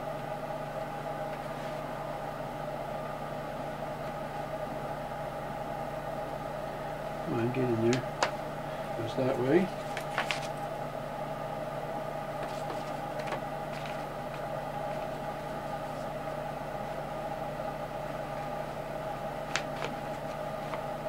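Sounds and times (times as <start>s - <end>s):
machine hum: 0.0s - 21.0s.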